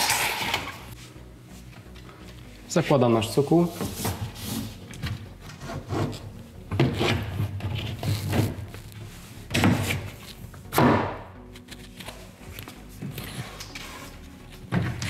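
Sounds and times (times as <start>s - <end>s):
board scraping and knocking: 3.7s - 8.7s.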